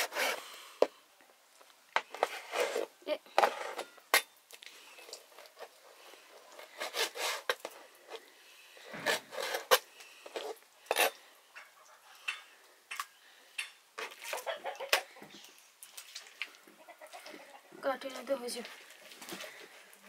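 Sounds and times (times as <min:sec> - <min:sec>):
hen clucking: 0:11.5 - 0:12.4, 0:14.0 - 0:15.5, 0:16.6 - 0:17.8.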